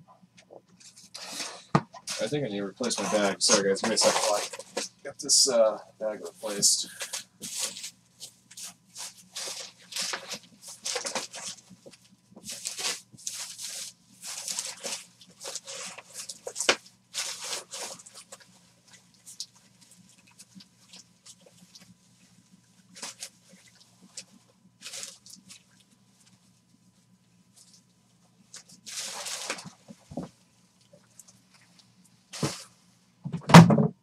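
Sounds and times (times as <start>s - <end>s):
faint steady hum: 0.0s - 34.0s
plastic crinkling and rustling: 0.8s - 5.5s, 6.3s - 32.7s.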